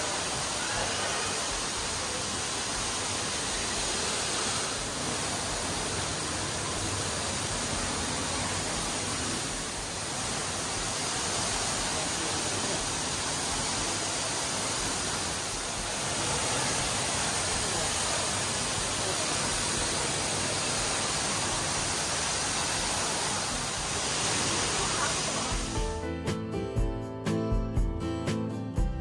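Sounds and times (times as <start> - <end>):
falling water rushing: 0.0 - 25.9.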